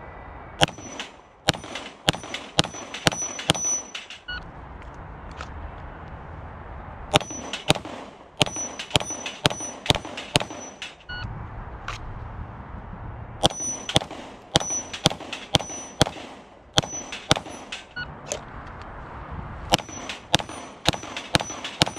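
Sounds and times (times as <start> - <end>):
pistol shots: 0.6 - 4.3, 7.1 - 11.0, 13.4 - 18.0, 19.7 - 21.9
steel plates ringing: 0.6 - 4.4, 7.1 - 7.8, 8.4 - 11.2, 13.4 - 16.2, 16.8 - 18.0, 19.7 - 21.9
electronic timer beep: 11.1 - 11.3.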